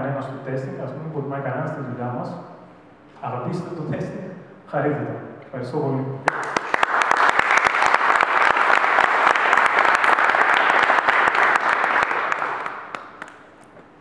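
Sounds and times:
audience applauding: 0:06.3 - 0:13.7.

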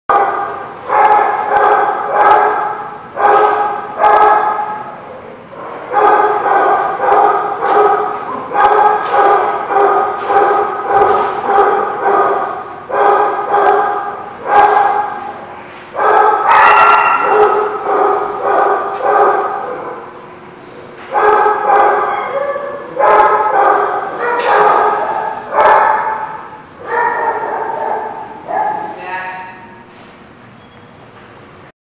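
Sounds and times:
dog barking: 0:00.1 - 0:04.9, 0:05.6 - 0:15.4, 0:16.0 - 0:20.1, 0:21.1 - 0:29.0
dog yipping: 0:05.9 - 0:15.2, 0:16.0 - 0:20.0, 0:21.2 - 0:29.0.

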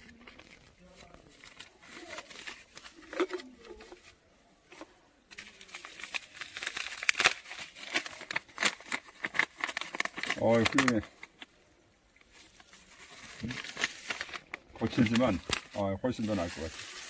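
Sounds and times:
faint paper rustles: 0:00.0 - 0:17.0
paper filter crinkling: 0:00.0 - 0:17.0.

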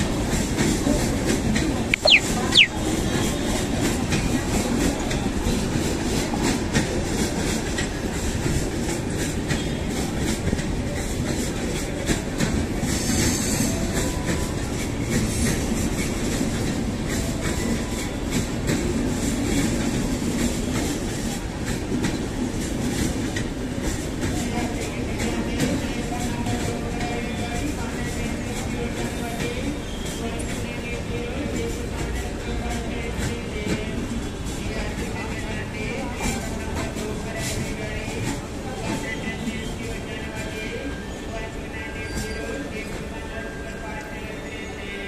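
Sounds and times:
train rumble with wheel clatter: 0:00.0 - 0:45.0
short high tone: 0:01.9 - 0:02.8.

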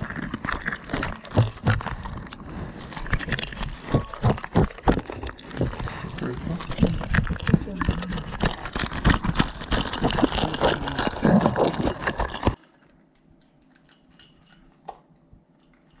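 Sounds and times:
rustling and clattering on microphone: 0:00.0 - 0:12.6
dog eating from a bowl: 0:00.0 - 0:16.0.

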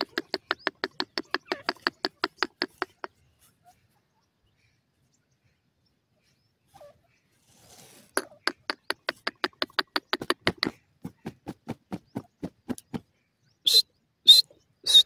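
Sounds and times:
francolin calling: 0:00.0 - 0:04.8, 0:13.4 - 0:15.0.

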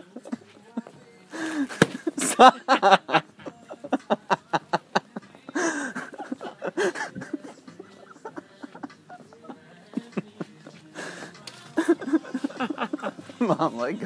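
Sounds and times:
person laughing hard: 0:00.0 - 0:13.8
breathy gasps: 0:01.3 - 0:01.8, 0:05.5 - 0:06.0, 0:10.9 - 0:11.4.

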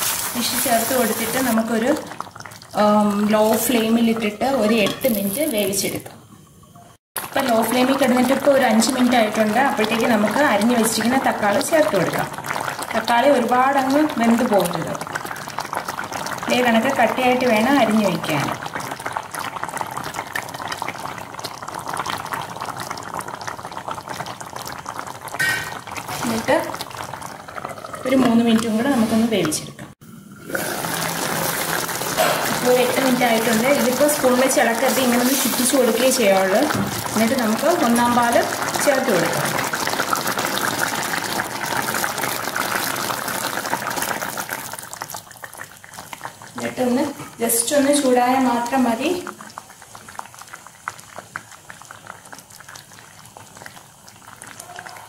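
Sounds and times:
stew simmering with bubbling pops: 0:00.0 - 0:55.0
coconut milk pouring: 0:30.2 - 0:46.7, 0:49.2 - 0:55.0.

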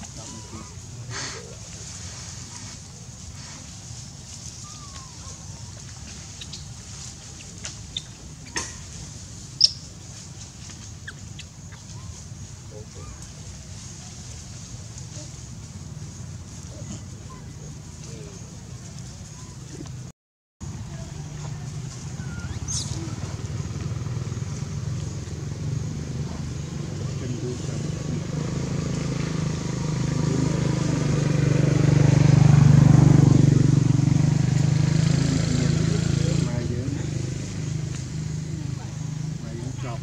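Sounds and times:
engine idling hum: 0:00.0 - 0:40.0
low rumble and hiss: 0:20.6 - 0:31.4.

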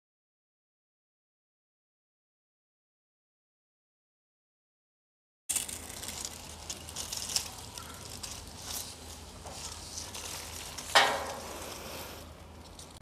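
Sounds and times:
garden sprayer hissing squirts: 0:05.5 - 0:12.4.

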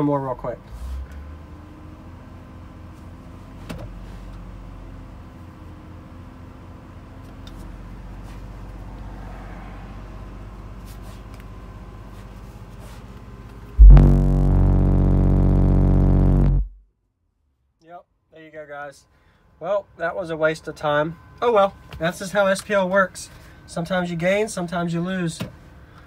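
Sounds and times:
distorted subwoofer bass tone: 0:13.8 - 0:16.8
low steady hum: 0:13.8 - 0:16.8.

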